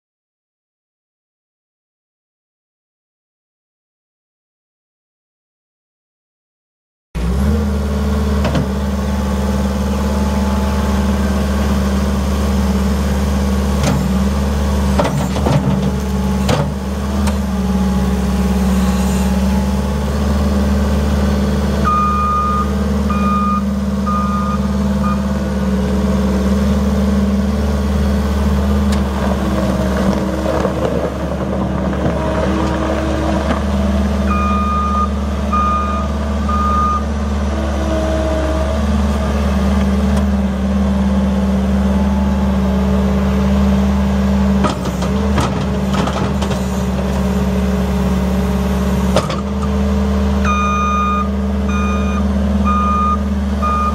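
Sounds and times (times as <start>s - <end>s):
diesel engine running: 7.2s - 53.9s
backup alarm beeping: 21.9s - 25.2s, 50.5s - 53.9s.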